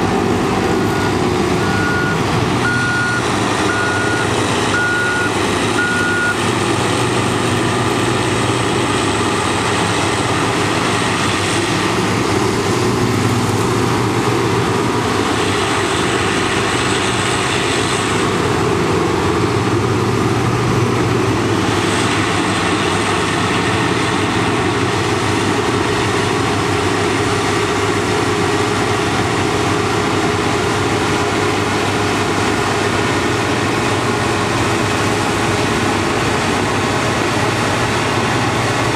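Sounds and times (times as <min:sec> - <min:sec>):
tractor engine: 0:00.0 - 0:38.9.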